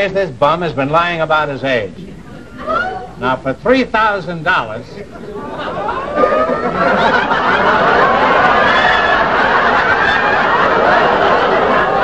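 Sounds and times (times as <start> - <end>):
audience laughing: 5.1 - 12.0.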